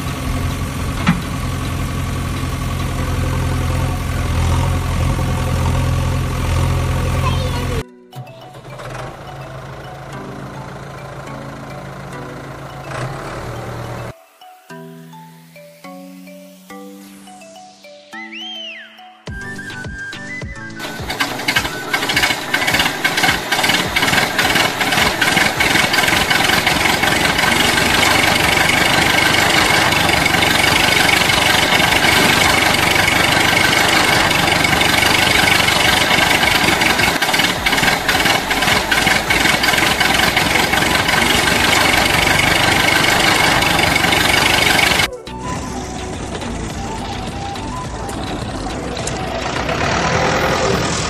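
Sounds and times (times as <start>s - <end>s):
toy wheels rolling on asphalt: 20.8s - 45.1s, 45.7s - 51.0s.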